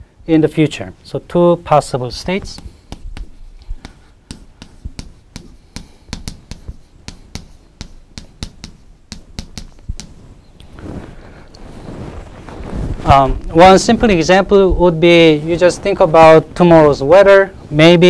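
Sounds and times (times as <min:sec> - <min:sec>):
chalk tapping on blackboard: 0:02.2 - 0:10.4
soft rushing noise: 0:09.8 - 0:18.0.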